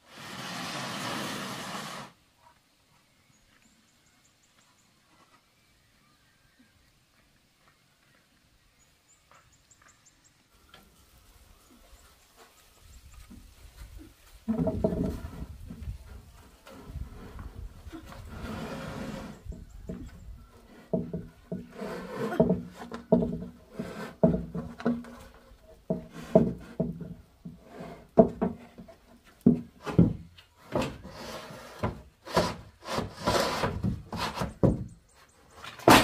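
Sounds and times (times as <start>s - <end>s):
roofing sheet scraping on wood: 0.0s - 2.2s, 16.6s - 19.5s, 20.8s - 26.8s, 30.6s - 34.7s.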